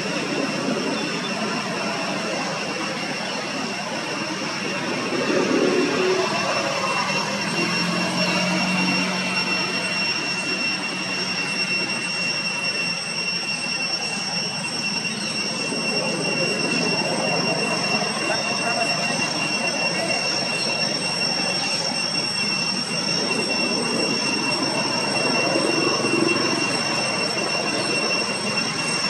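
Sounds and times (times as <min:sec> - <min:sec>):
thin high-pitched whine: 0:00.0 - 0:29.0.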